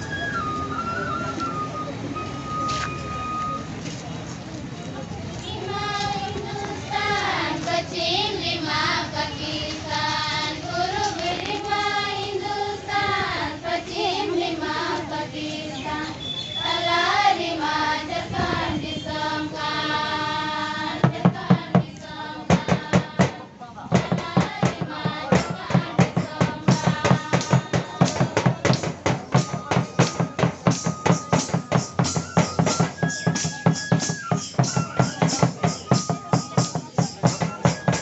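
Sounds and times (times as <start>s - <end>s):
women singing in unison: 5.4s - 29.6s
hand drum strokes: 20.9s - 38.0s.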